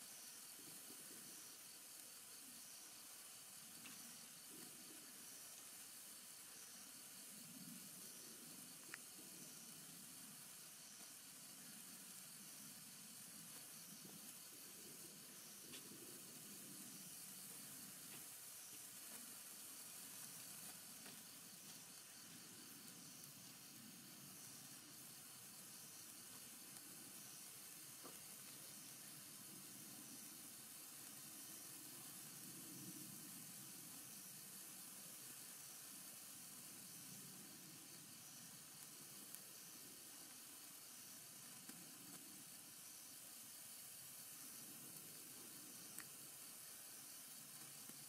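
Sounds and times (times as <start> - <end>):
sparkler sizzling hiss: 0.0 - 48.0
sparks crackling: 8.6 - 43.3, 47.4 - 48.0.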